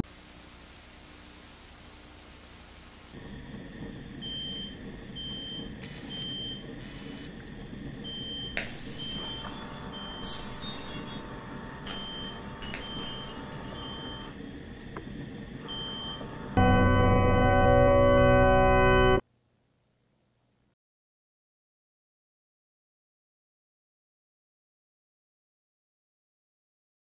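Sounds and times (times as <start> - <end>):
low rumbling hum: 3.0 - 19.2
steady mid-pitched tone: 3.2 - 14.3, 15.6 - 19.2
high electronic beeps: 8.0 - 14.3, 15.7 - 17.1.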